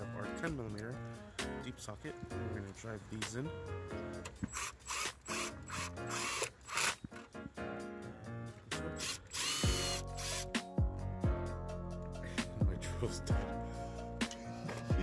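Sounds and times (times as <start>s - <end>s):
cordless drill bursts: 4.5s - 7.0s, 9.0s - 10.5s.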